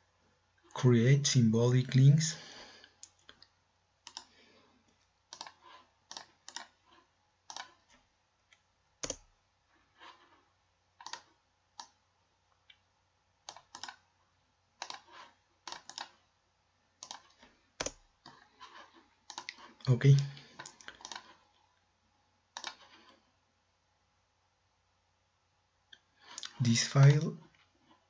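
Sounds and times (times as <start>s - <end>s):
mouse and keyboard clicks: 4.0s - 4.3s, 5.3s - 6.8s, 7.5s - 9.3s, 11.0s - 12.0s, 13.5s - 14.0s, 14.8s - 16.2s, 17.0s - 21.4s, 22.5s - 23.0s.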